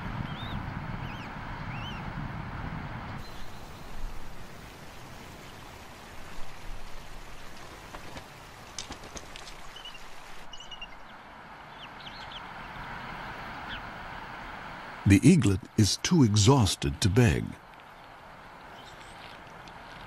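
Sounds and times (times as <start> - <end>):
steady hiss: 3.2 - 10.6.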